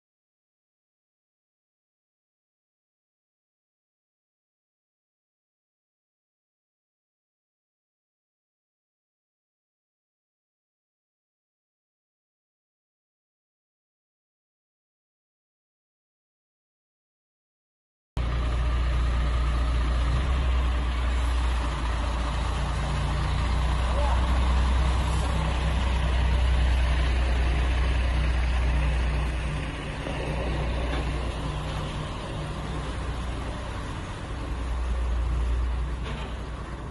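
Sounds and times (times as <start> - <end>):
truck diesel engine rumbling: 18.2 - 36.9.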